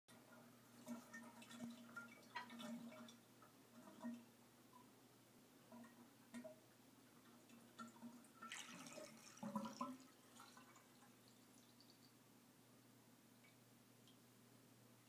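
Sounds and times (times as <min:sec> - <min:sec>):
faint steady hum: 0:00.1 - 0:15.0
water dripping at drain: 0:05.7 - 0:06.6, 0:07.2 - 0:12.2, 0:13.4 - 0:14.3.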